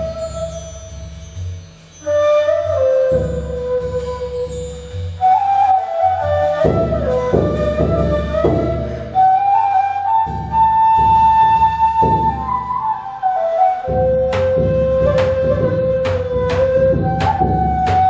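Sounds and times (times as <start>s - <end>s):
end-blown flute melody: 0.0s - 18.0s
deep drum strokes: 2.8s - 12.8s, 13.9s - 18.0s.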